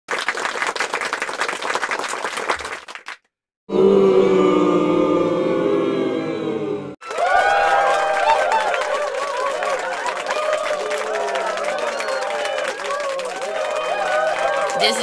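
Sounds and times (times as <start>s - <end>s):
crowd cheering and clapping: 0.1s - 6.0s, 6.9s - 15.0s
choir-like held chords: 3.7s - 12.8s.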